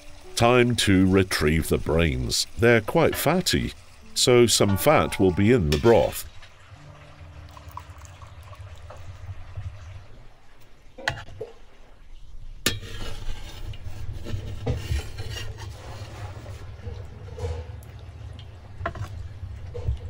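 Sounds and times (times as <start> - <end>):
metal skimmer knocking and scraping: 12.6 - 17.8.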